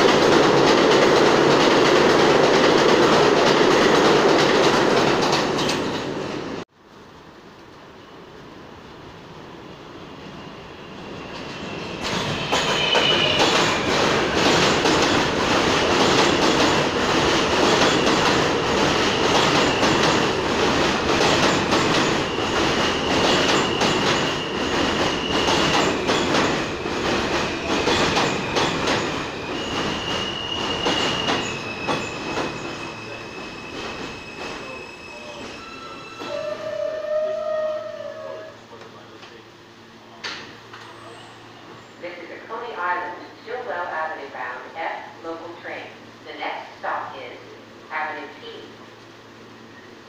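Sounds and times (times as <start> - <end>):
subway train wheels clacking: 0.0 - 6.6, 7.6 - 47.2
wheel and brake squeals: 10.4 - 14.0, 28.2 - 36.7, 40.8 - 42.0.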